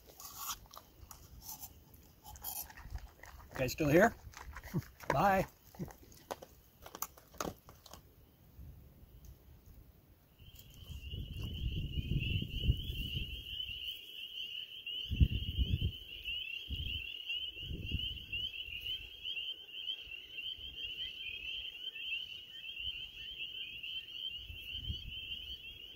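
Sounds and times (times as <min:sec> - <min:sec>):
frogs peeping and trilling: 0:00.0 - 0:08.0, 0:10.3 - 0:25.9
wind buffeting microphone: 0:10.8 - 0:13.8, 0:15.1 - 0:16.0, 0:17.6 - 0:18.4.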